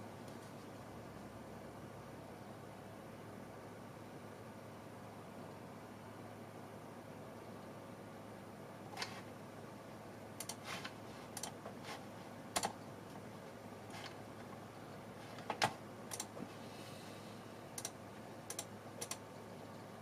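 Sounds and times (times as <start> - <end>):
faint steady hum: 0.0 - 20.0
computer mouse clicking: 10.4 - 10.6, 11.4 - 11.6, 12.6 - 12.8, 15.5 - 16.4, 17.8 - 19.2.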